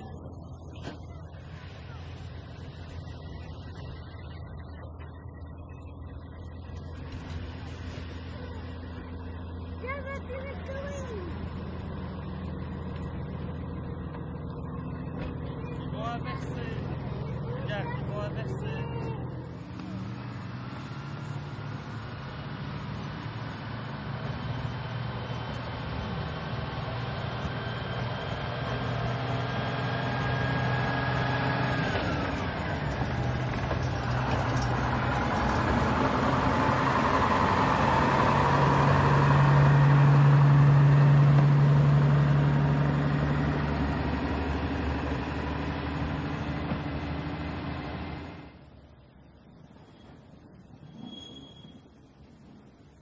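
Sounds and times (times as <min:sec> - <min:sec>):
diesel railcar engine passing: 0:00.0 - 0:53.0.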